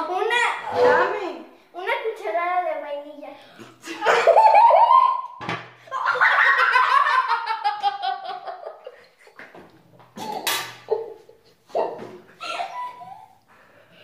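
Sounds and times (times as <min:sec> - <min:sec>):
girl laughing hard: 0:04.0 - 0:05.3, 0:05.9 - 0:09.1, 0:12.4 - 0:13.4.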